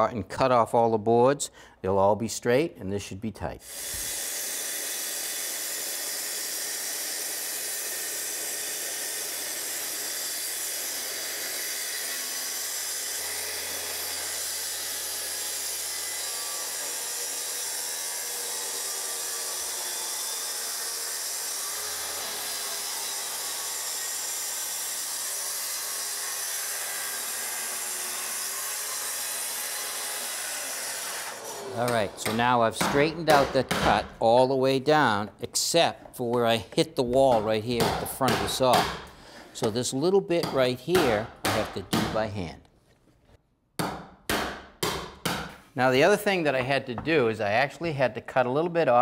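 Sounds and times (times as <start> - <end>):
track saw cutting wood: 3.6 - 33.8.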